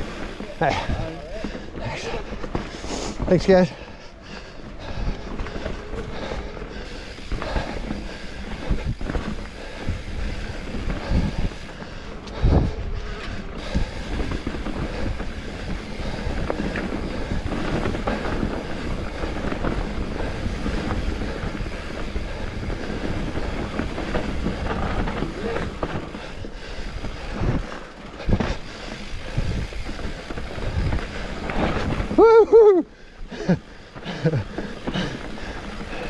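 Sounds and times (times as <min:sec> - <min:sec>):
bike tyre and frame rattle: 0:00.0 - 0:36.0
wind noise on microphone: 0:07.2 - 0:32.2.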